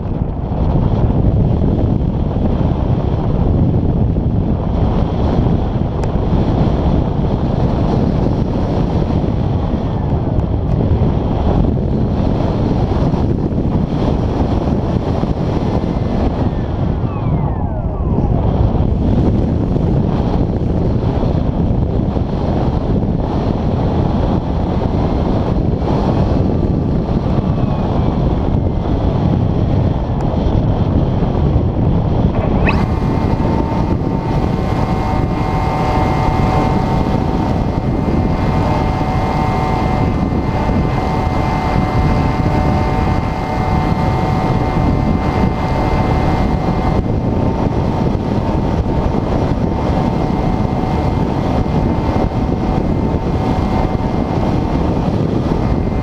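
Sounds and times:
wind rushing over glider: 0:00.0 - 0:56.0
electric motor whine: 0:26.0 - 0:29.1, 0:32.2 - 0:56.0.

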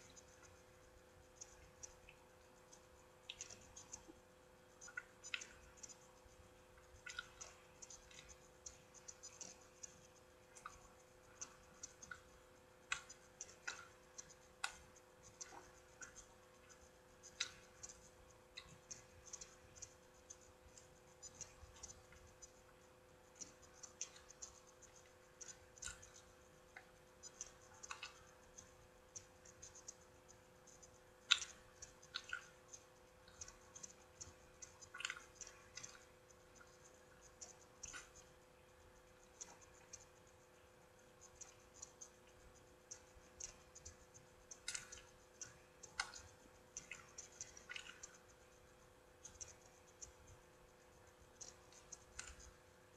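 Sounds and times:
chewing clicks and smacks: 0:00.0 - 0:52.9
faint steady hum: 0:00.0 - 0:52.9.

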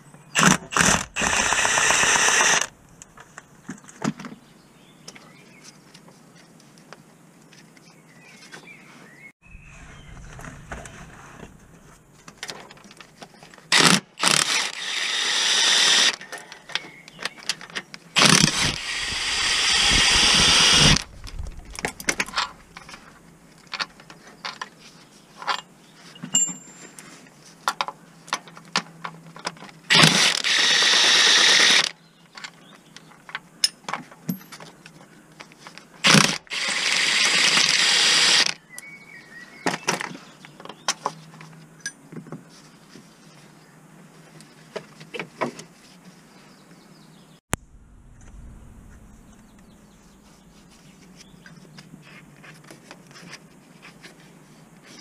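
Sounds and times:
fast ratchet clicking: 0:00.4 - 0:02.7.

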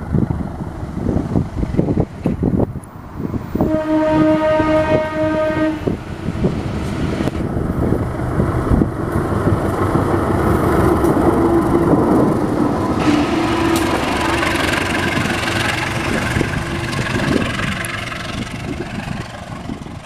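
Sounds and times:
diesel locomotive engine: 0:00.0 - 0:20.0
train wheels on rails: 0:00.0 - 0:20.0
locomotive air horn blast: 0:03.6 - 0:06.0, 0:13.0 - 0:14.4.

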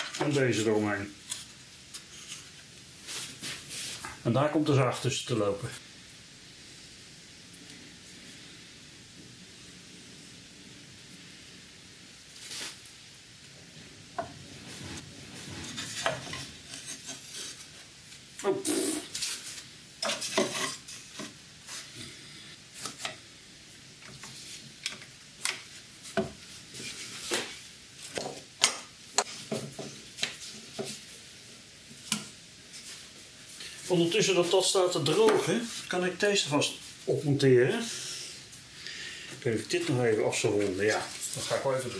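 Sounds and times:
short wooden scrapes: 0:14.5 - 0:17.7.

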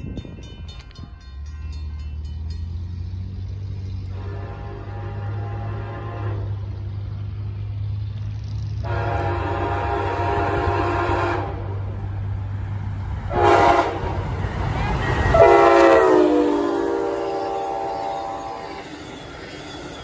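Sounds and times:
low train rumble: 0:00.0 - 0:20.0
locomotive air horn: 0:04.0 - 0:06.8, 0:08.8 - 0:12.0, 0:13.3 - 0:14.3, 0:15.1 - 0:18.9.

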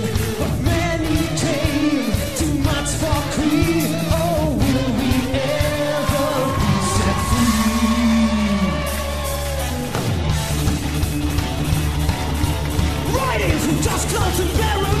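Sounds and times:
man singing rock vocals: 0:00.0 - 0:09.4, 0:13.1 - 0:15.0
loud rock band: 0:00.0 - 0:15.0.

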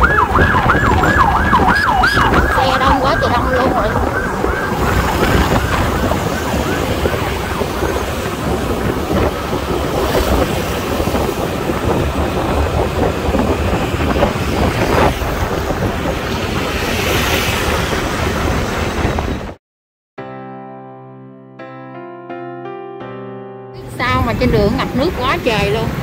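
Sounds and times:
motor scooter engine drone: 0:00.0 - 0:19.5
road traffic: 0:00.0 - 0:19.6, 0:23.8 - 0:26.0
wind rushing over microphone: 0:00.0 - 0:19.6, 0:23.8 - 0:26.0.

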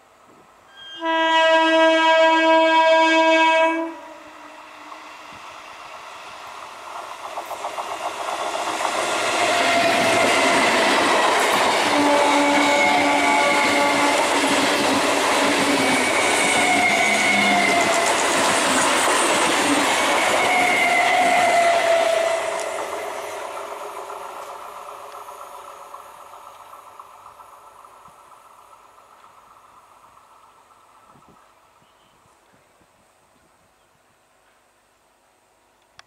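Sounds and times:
train horn blast: 0:00.7 - 0:05.0, 0:11.8 - 0:14.4
train wheels clattering on rails: 0:06.4 - 0:31.5.

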